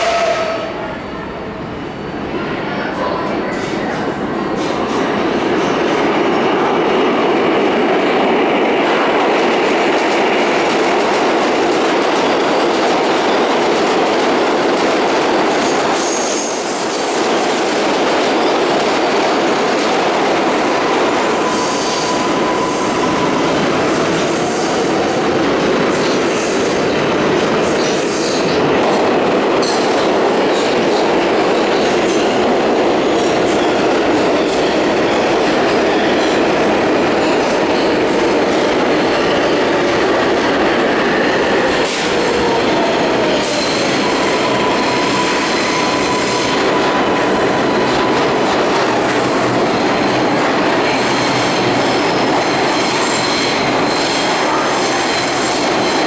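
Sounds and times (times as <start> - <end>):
train pulling into station: 0.0 - 56.0
train wheels rumbling on rails: 0.0 - 56.0
train wheel squeal: 20.9 - 23.7, 43.3 - 48.0.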